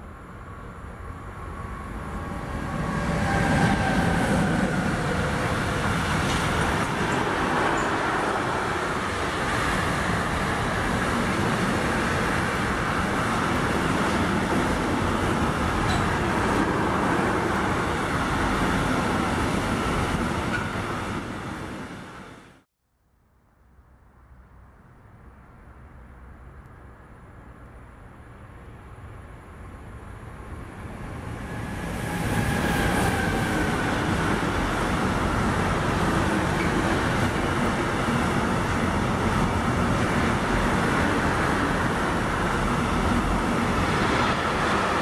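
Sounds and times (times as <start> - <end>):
electric locomotive passing: 0.0 - 22.6, 26.6 - 45.0.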